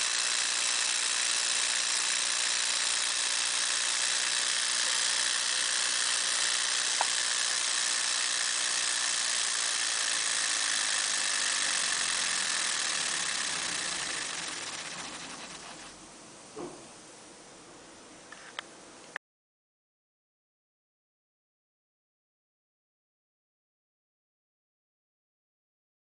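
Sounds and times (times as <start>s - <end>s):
air engine hissing whirr: 4.6s - 16.1s.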